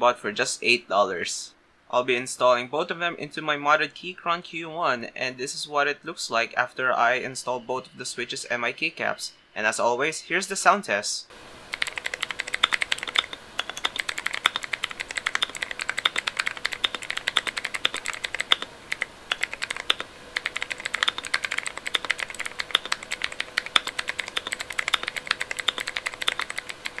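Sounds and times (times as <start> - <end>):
mechanical keyboard typing: 11.7 - 27.0.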